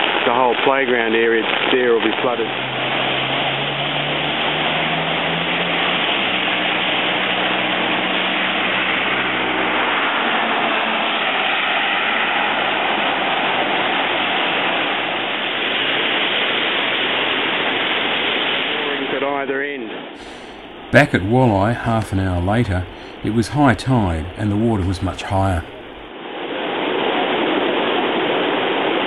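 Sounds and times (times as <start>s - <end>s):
faint low hum: 20.2s - 26.1s.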